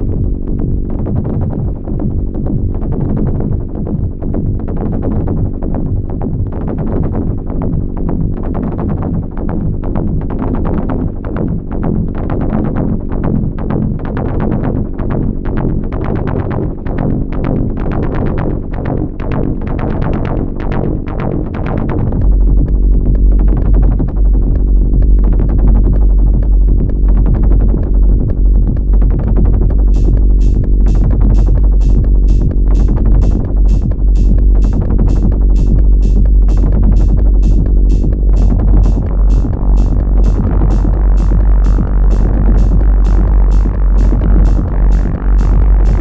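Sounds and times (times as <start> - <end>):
heavy deep bass: 0.0 - 46.0
repeating synth bass line: 0.0 - 46.0
electronic percussion beat: 22.2 - 46.0.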